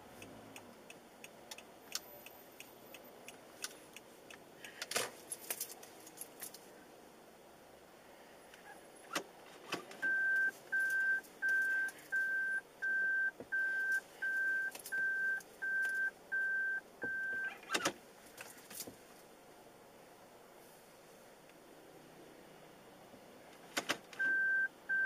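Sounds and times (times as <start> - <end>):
reverse warning beeps: 10.0 - 17.6, 24.2 - 25.0.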